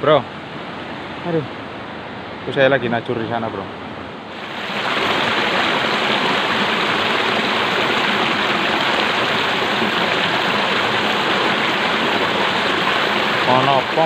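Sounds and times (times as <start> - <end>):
stream rushing over rocks: 3.1 - 14.0.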